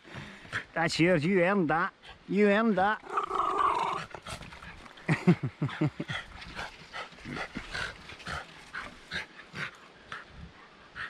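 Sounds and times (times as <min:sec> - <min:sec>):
dog panting: 0:05.8 - 0:11.0.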